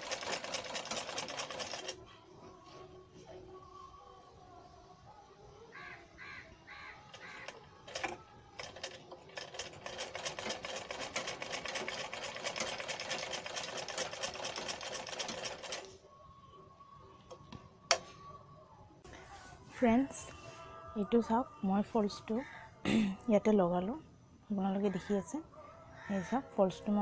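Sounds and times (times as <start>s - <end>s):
sewing machine stitching: 0.0s - 2.0s, 7.4s - 15.9s.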